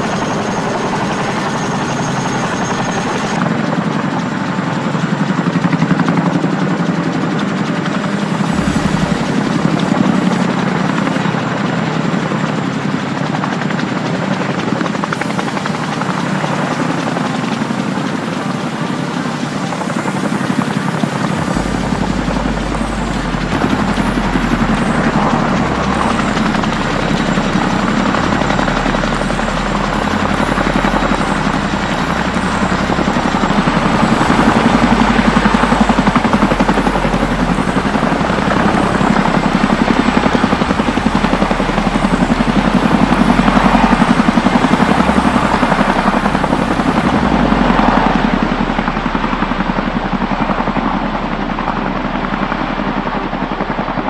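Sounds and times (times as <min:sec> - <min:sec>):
helicopter rotors hovering: 0:00.0 - 0:54.0
deep rumble: 0:08.0 - 0:11.5, 0:21.2 - 0:53.3.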